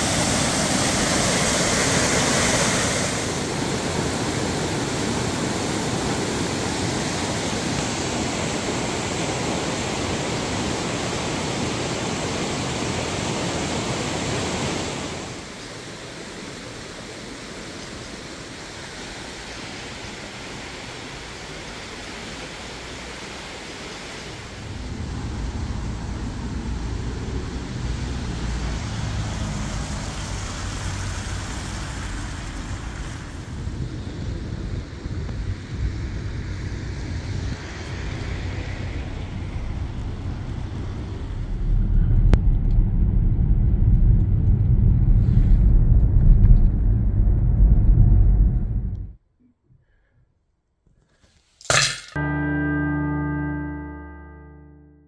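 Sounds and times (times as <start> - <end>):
waterfall rushing: 0.0 - 33.6
low rumble: 24.5 - 49.2.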